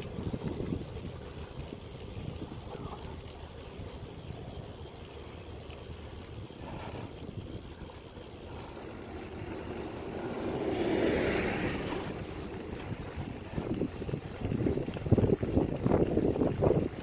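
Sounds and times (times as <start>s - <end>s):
wind on microphone: 0.0s - 4.0s, 8.5s - 17.0s
riding rumble: 0.0s - 17.0s
car passing: 8.4s - 15.0s.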